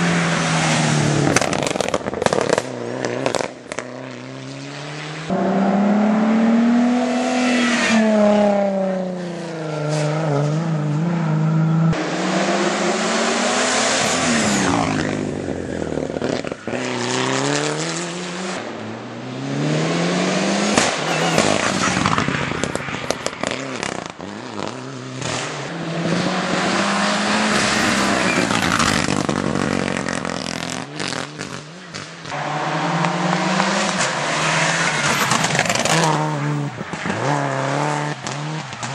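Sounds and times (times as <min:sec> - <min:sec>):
race car engines revving: 0:00.0 - 0:38.9.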